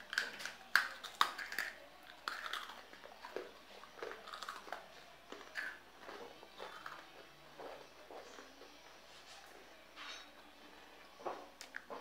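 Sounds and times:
biscuit crunching and chewing: 0:00.0 - 0:08.8.

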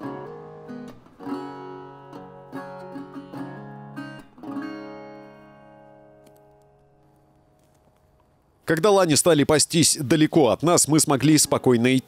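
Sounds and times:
acoustic guitar strumming chords: 0:00.0 - 0:07.4.

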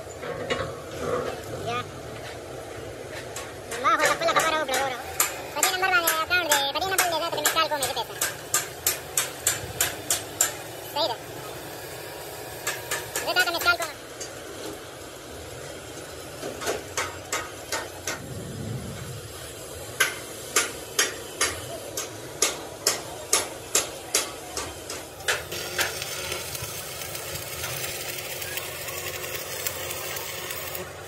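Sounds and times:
hammer striking steel: 0:03.4 - 0:10.8, 0:20.0 - 0:26.0
steady low noise: 0:18.1 - 0:20.1.

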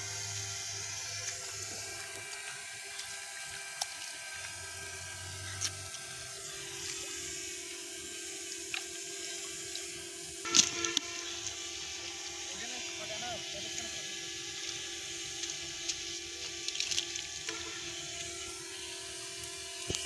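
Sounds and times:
steady hum: 0:00.0 - 0:20.0
small clicks: 0:15.4 - 0:17.6.

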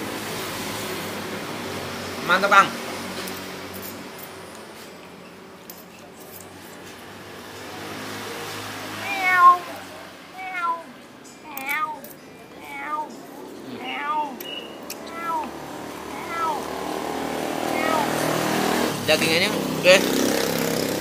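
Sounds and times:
cat meowing: 0:08.9 - 0:12.0, 0:12.6 - 0:14.4, 0:15.0 - 0:16.7, 0:17.7 - 0:18.3.

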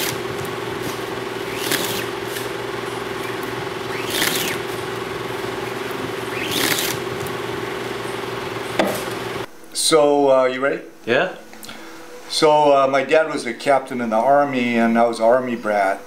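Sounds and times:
steady machine hum: 0:00.0 - 0:16.0.

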